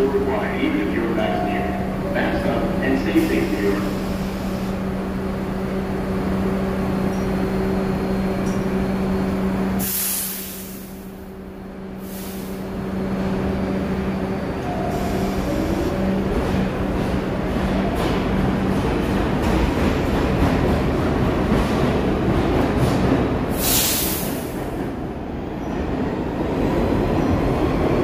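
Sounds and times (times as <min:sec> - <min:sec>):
subway train electrical hum: 0:00.0 - 0:28.0
air brakes hissing: 0:09.8 - 0:11.2, 0:12.0 - 0:12.7, 0:23.5 - 0:24.7.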